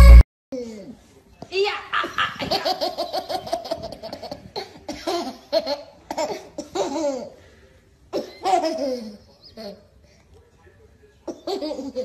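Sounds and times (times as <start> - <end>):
baby laughing: 1.9 - 7.4, 8.2 - 9.9, 11.3 - 12.0.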